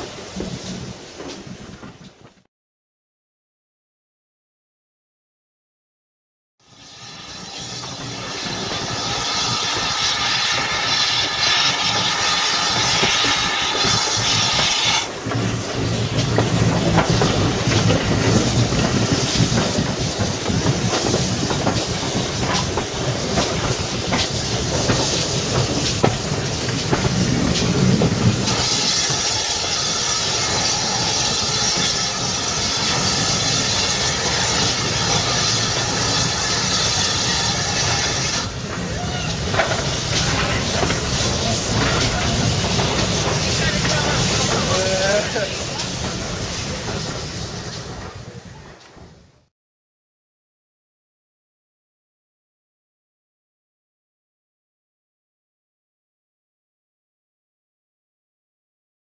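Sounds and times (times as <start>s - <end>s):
steam hissing: 6.6s - 48.6s
train wheels clicking over rail joints: 7.8s - 49.3s.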